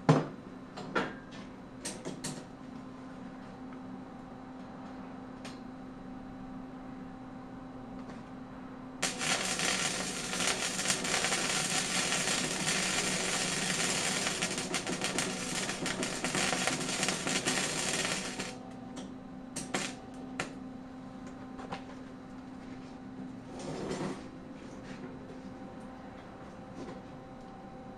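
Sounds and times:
steady low hum: 2.4s - 23.6s
welder arc crackling: 9.0s - 18.6s, 19.6s - 20.0s.

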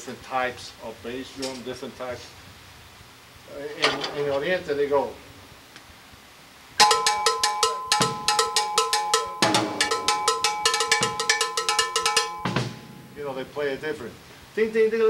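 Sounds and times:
cowbell struck with drumstick: 6.8s - 13.6s
low drum hits: 9.4s - 11.4s, 12.5s - 14.2s.

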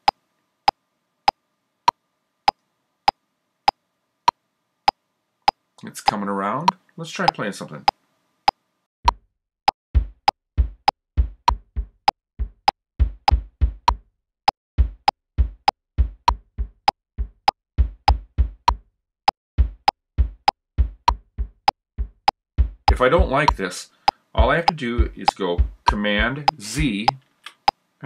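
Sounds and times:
click track ticking: 4.9s - 8.6s, 19.8s - 27.8s
kick drum thumps: 10.0s - 14.0s, 14.8s - 18.8s, 19.6s - 23.6s, 24.4s - 26.9s.

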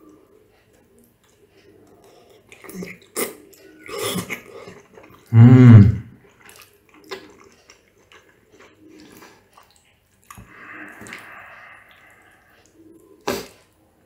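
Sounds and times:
soft chewing: 0.0s - 5.3s, 6.1s - 14.0s
person humming: 5.3s - 6.1s
wet mouth sound: 9.6s - 13.7s.

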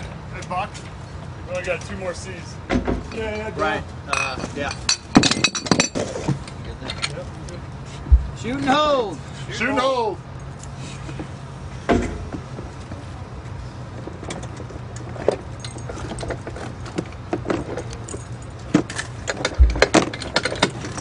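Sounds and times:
metal clatter: 4.2s - 7.2s, 14.2s - 21.0s
low engine hum: 5.0s - 21.0s
low thump: 8.1s - 8.4s, 19.6s - 20.1s
metallic clicks and knocks: 14.2s - 21.0s.

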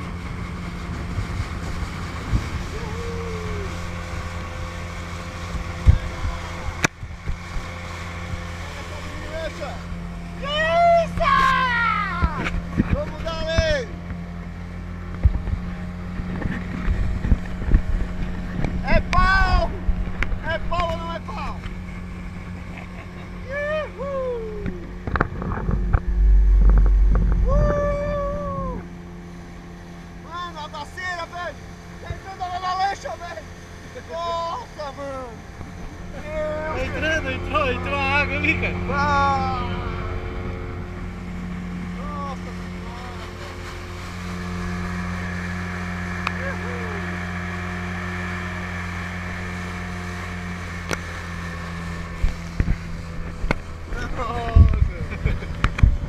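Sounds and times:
wind rumble on microphone: 0.0s - 8.6s, 15.0s - 21.0s, 23.8s - 29.1s, 51.4s - 56.0s
motorboat engine droning: 0.0s - 56.0s
water rushing along hull: 0.0s - 56.0s
person whooping: 2.7s - 3.8s, 23.5s - 24.9s, 27.4s - 28.9s.

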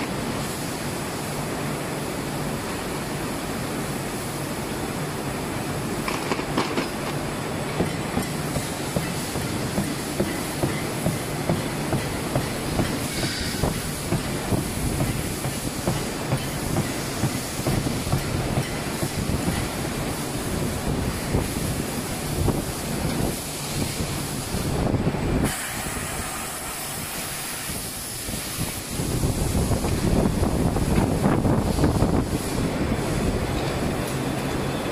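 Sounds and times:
factory machinery rumbling: 0.0s - 26.8s
clatter of knocks and clicks: 6.1s - 7.2s.

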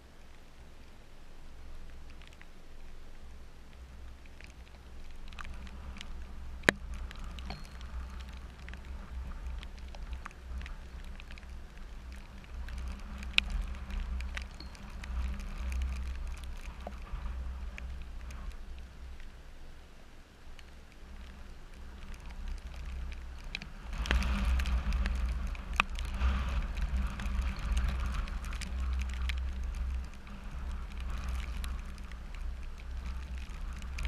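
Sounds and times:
rain pattering: 0.0s - 34.0s
raindrops ticking on camera: 0.0s - 34.0s
steady low rumble: 0.0s - 34.0s.

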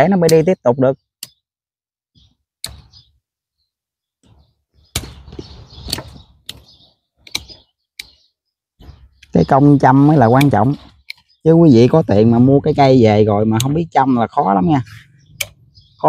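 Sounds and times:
pruning shears snipping roots: 10.1s - 11.2s.

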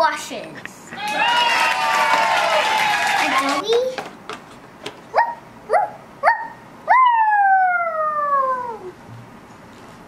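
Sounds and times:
dog yips: 5.2s - 8.1s.

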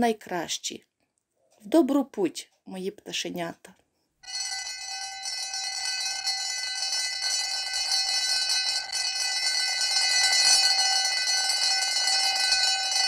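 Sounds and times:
school bell ringing: 4.2s - 13.0s.

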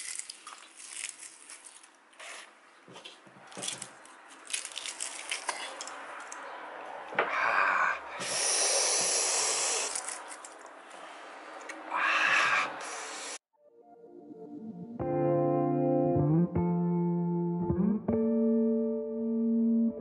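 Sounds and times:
bacon crumbling crackles: 0.0s - 2.0s, 3.6s - 6.4s.

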